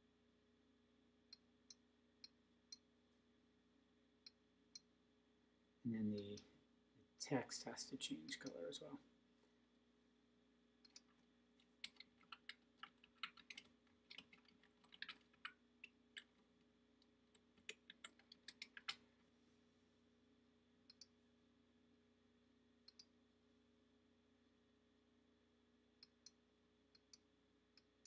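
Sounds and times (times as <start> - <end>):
keyboard typing: 10.9 - 16.4, 17.3 - 19.0.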